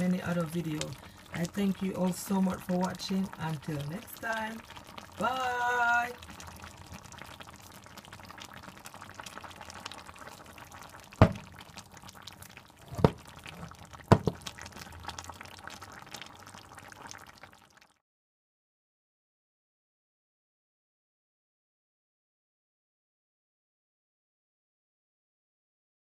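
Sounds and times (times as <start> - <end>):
stew bubbling in a pot: 0.0 - 18.0
sharp pops: 11.2 - 11.6.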